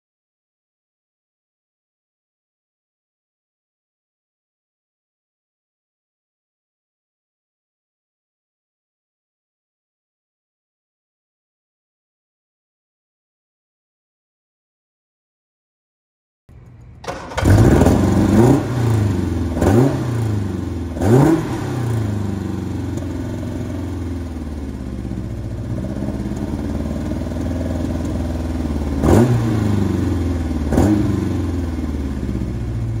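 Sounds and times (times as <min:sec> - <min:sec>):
car engine starting and revving: 0:16.6 - 0:33.0.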